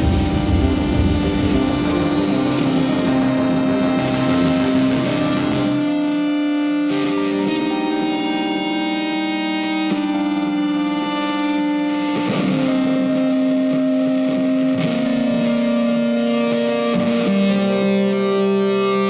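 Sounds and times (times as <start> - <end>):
background music with held chords: 0.0 - 19.0.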